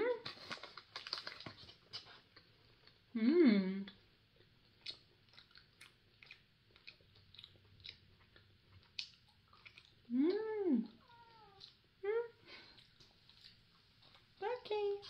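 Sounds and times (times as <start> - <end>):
gummy chewing mouth clicks: 4.4 - 10.0
cat meowing: 11.0 - 11.6.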